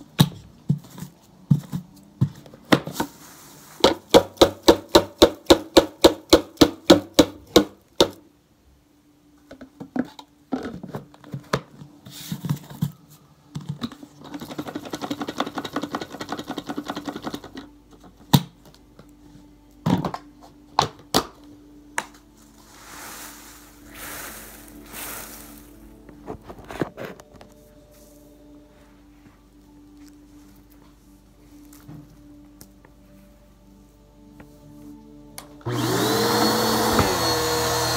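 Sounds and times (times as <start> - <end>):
tissue paper crunching and rustling: 3.1 - 3.8, 22.2 - 31.9.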